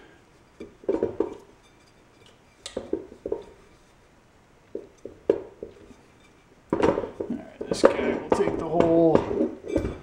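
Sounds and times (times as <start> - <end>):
light knocks and clunks of handling: 2.2 - 3.8, 6.7 - 10.0.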